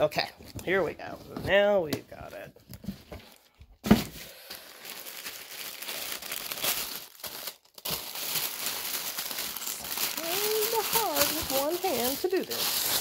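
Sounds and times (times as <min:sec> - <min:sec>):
tissue paper crinkling: 0:04.3 - 0:13.0.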